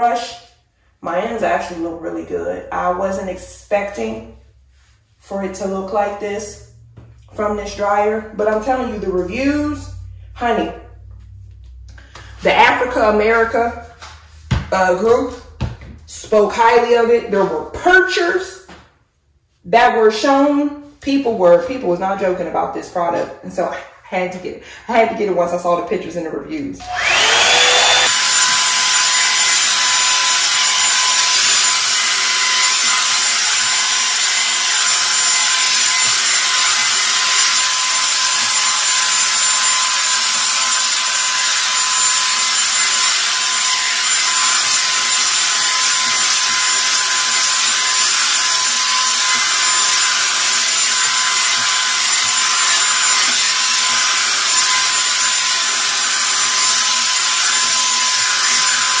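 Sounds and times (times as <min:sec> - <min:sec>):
hair dryer brush motor whining: 0:26.8 - 0:59.0.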